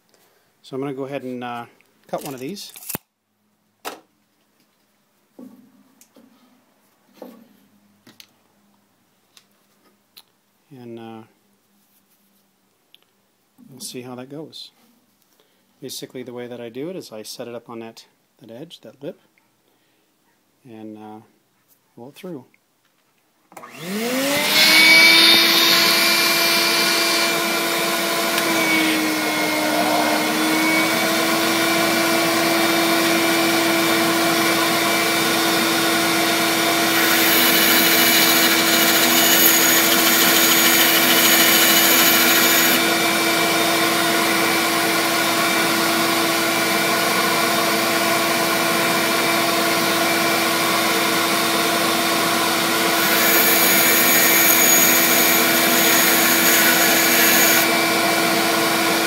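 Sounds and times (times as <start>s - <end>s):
bandsaw cutting: 23.6s - 45.8s, 52.5s - 59.0s
shop vacuum motor whine: 23.6s - 59.0s.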